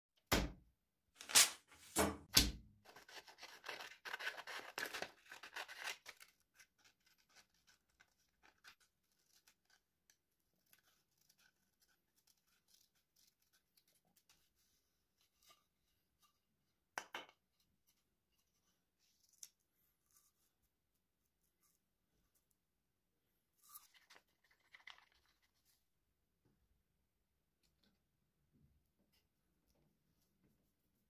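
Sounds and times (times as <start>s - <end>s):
paper rustling and tearing: 1.2s - 2.0s, 2.9s - 9.8s
scissors cutting paper: 2.9s - 9.8s.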